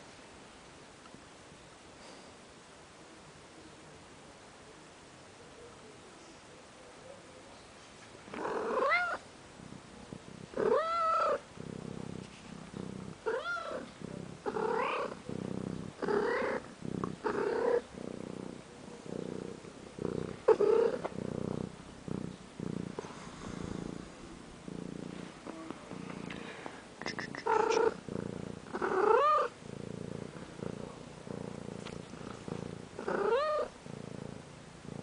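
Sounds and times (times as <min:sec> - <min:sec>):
cat purring: 0:07.9 - 0:35.0.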